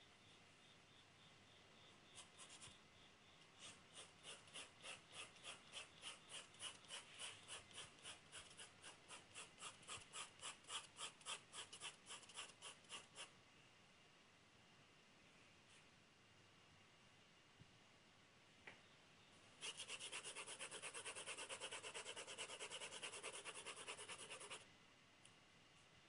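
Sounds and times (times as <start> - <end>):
pencil scratching on paper: 2.2 - 2.8, 3.6 - 13.3, 19.6 - 24.6.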